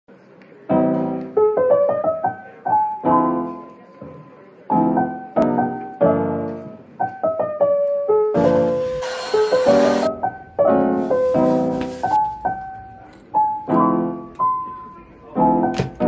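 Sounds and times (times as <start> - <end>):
piano music: 0.7 - 16.0.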